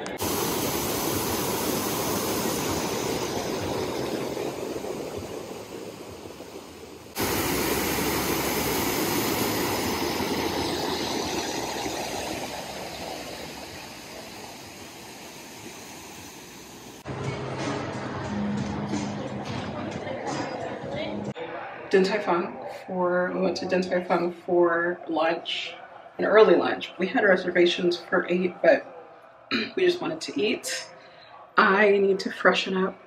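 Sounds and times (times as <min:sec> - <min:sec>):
fountain water splashing: 0:00.0 - 0:17.0.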